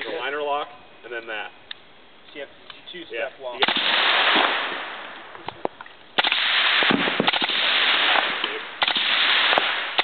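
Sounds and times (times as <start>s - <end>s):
suppressed rifle firing: 3.6s - 5.0s, 6.2s - 10.0s.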